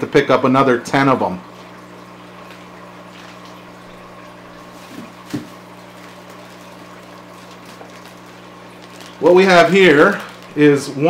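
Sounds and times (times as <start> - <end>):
low electrical hum: 0.0 - 11.0
soft knocks in cardboard box: 4.9 - 5.6.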